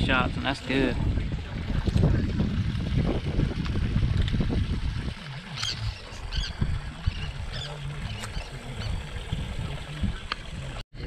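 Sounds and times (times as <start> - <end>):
water lapping around boat: 0.0 - 10.8
wind: 0.0 - 11.0
seabirds chirping: 5.2 - 10.3.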